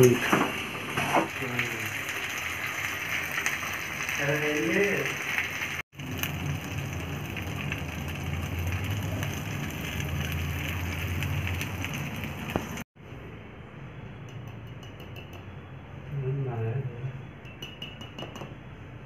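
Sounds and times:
gas stove hissing and rumbling: 0:00.0 - 0:13.2.

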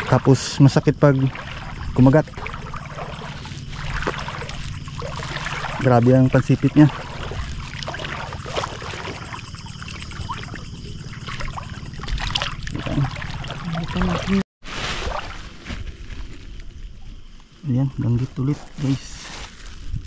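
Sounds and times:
low steady rumble: 0:00.0 - 0:14.4
seawater splashing: 0:00.0 - 0:15.6.

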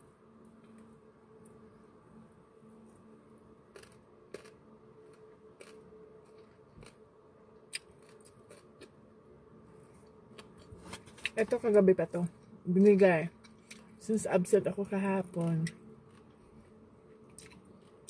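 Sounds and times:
low steady hum: 0:00.0 - 0:18.0
chewing food: 0:03.7 - 0:07.0, 0:07.7 - 0:09.0, 0:12.2 - 0:14.0, 0:15.4 - 0:18.0.

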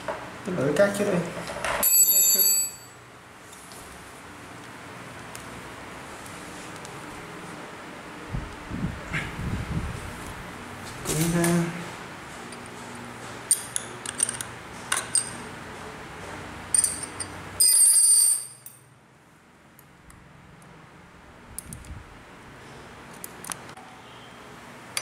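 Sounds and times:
metal tools clinking: 0:01.8 - 0:03.0, 0:13.5 - 0:15.4, 0:16.7 - 0:18.9
ringing metallic jingle: 0:01.8 - 0:03.0, 0:16.7 - 0:18.9.

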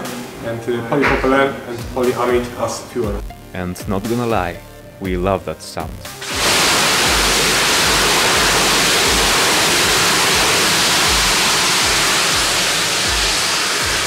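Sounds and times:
rocket engine roaring: 0:06.2 - 0:14.0.

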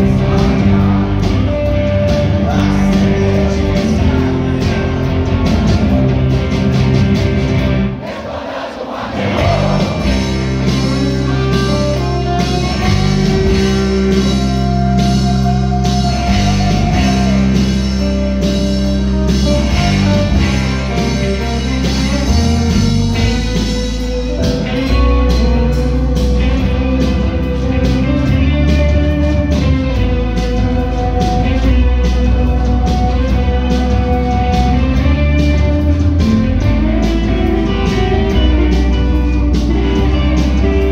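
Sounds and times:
live rock band playing: 0:00.0 - 0:08.1, 0:09.1 - 0:40.9
person singing: 0:09.2 - 0:18.4.

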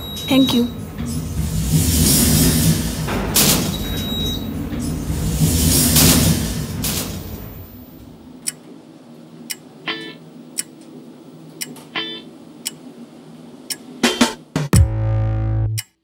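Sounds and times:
clock ticking: 0:13.7 - 0:14.4, 0:15.8 - 0:16.0.

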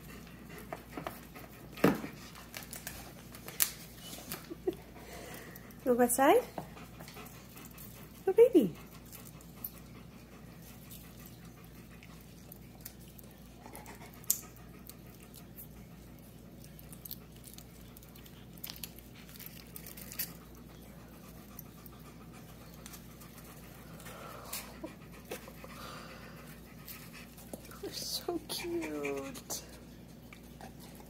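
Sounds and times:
low room hum: 0:00.0 - 0:31.0
tinsel garland clicks and rustles: 0:17.0 - 0:20.4.

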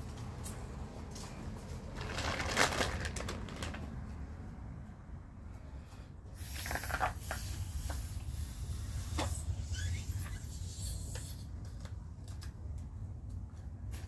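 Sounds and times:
breath blowing into balloon: 0:06.4 - 0:11.5
rubber rubbing and squeaking: 0:06.4 - 0:11.8.

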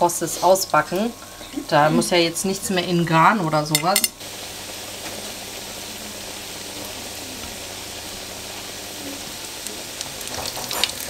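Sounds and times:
food sizzling in oil: 0:00.0 - 0:11.0
metal tongs clicking: 0:03.8 - 0:04.2.

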